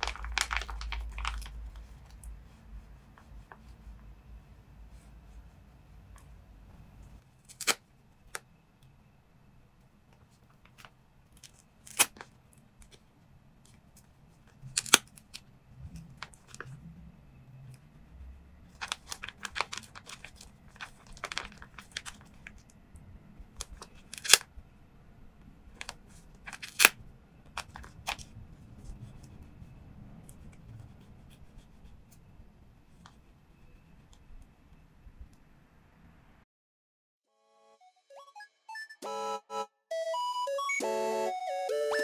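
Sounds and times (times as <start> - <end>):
tape crinkling and crackling: 0.0 - 2.5, 18.7 - 22.7, 23.6 - 24.5, 25.7 - 29.2.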